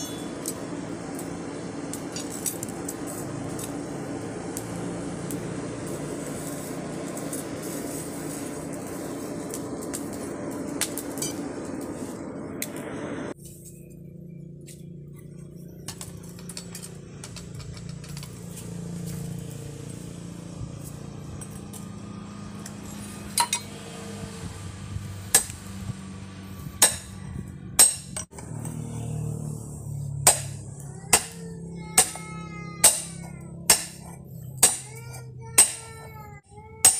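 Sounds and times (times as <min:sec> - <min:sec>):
hammer striking metal on anvil: 0:00.0 - 0:00.6, 0:22.6 - 0:23.8, 0:25.3 - 0:25.6, 0:26.8 - 0:27.2, 0:27.8 - 0:28.7, 0:30.2 - 0:36.1.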